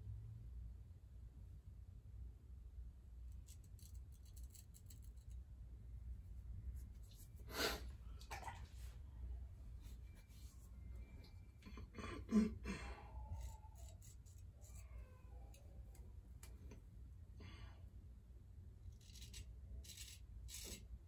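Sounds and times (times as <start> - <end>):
razor scraping stubble: 13.2 - 14.9, 18.9 - 20.8.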